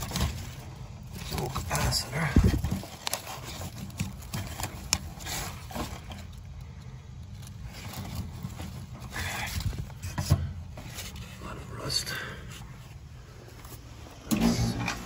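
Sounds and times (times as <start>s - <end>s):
hand rustling against wiring: 0.0s - 15.0s
steady low hum: 0.0s - 15.0s.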